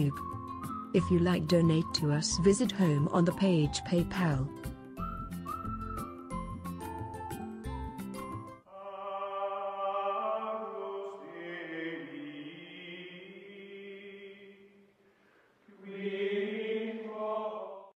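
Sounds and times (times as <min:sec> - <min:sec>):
choir singing sustained chords: 0:08.7 - 0:14.7, 0:15.7 - 0:17.9.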